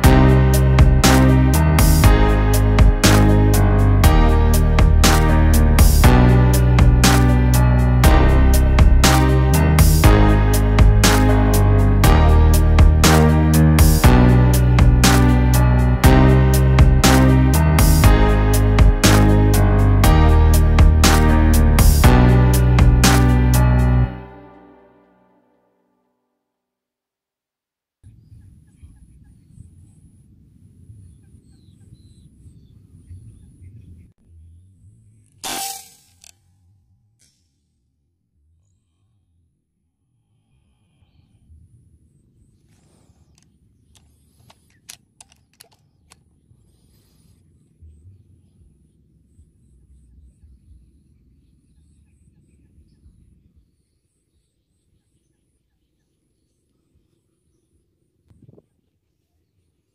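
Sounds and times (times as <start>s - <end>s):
steady low rumble: 0.0s - 24.3s
birds chirping: 40.8s - 59.9s.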